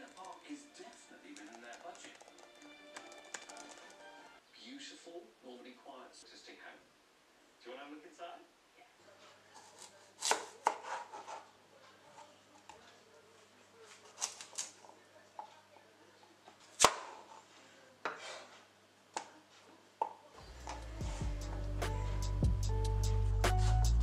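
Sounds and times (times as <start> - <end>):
knife cutting on cutting board: 9.6 - 11.5.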